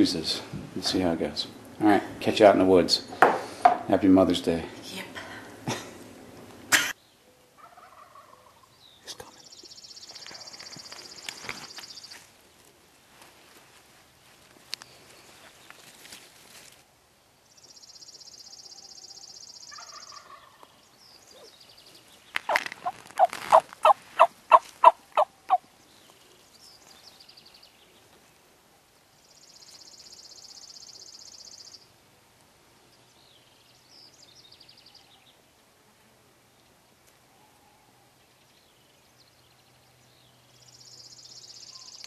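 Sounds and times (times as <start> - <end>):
turkey yelping: 7.6 - 8.7, 19.7 - 20.6, 22.5 - 25.6
faint bird chirps: 37.3 - 42.0.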